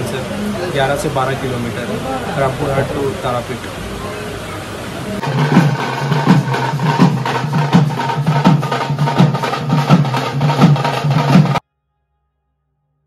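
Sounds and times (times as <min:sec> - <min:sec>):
drummers beating barrel drums: 0:05.2 - 0:11.6.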